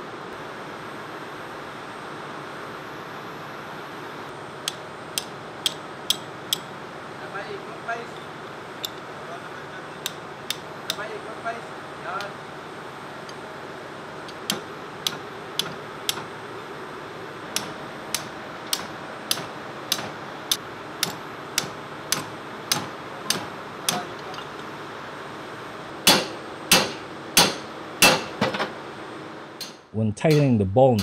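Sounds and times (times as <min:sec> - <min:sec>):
hammer tapping metal spanner: 0:04.6 - 0:06.7, 0:08.1 - 0:09.0, 0:10.0 - 0:11.1, 0:14.3 - 0:16.3, 0:17.6 - 0:24.5
hard hammer blows on metal: 0:26.0 - 0:28.5, 0:29.6 - 0:31.0.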